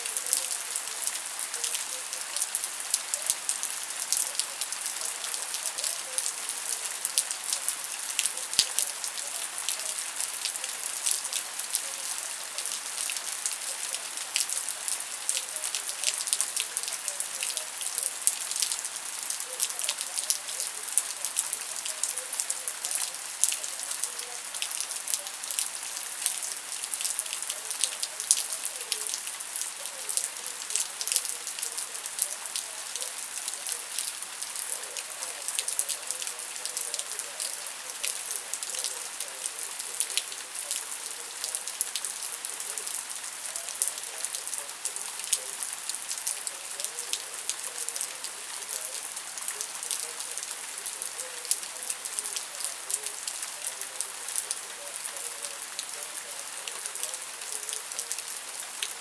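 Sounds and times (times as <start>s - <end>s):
steady rain falling: 0.0s - 59.0s.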